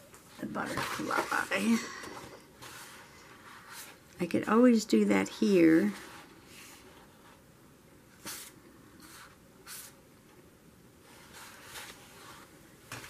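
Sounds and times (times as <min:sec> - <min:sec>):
paper pages rustling: 0:00.6 - 0:04.0.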